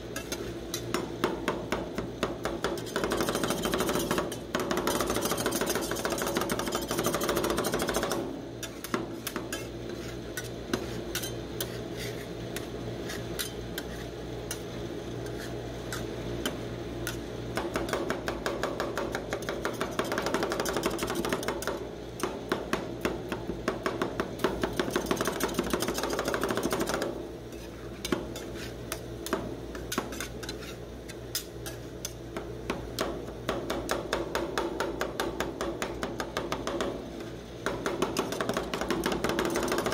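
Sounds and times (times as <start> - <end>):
spatulas scraping: 0.1 - 0.9, 2.8 - 16.2, 27.5 - 29.1, 29.7 - 32.2
metal spatulas chopping on steel: 0.1 - 37.0, 37.6 - 39.9.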